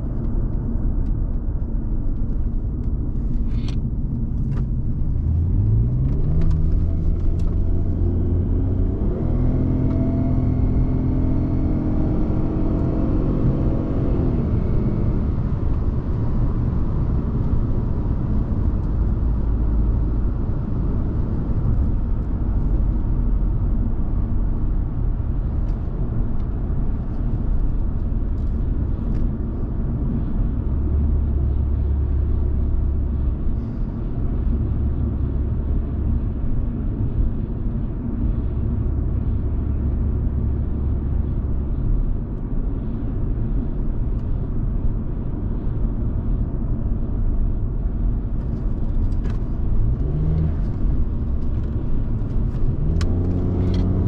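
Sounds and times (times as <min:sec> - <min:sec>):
tyre road noise: 0:00.0 - 0:54.0
car engine accelerating: 0:02.2 - 0:37.4, 0:48.2 - 0:54.0.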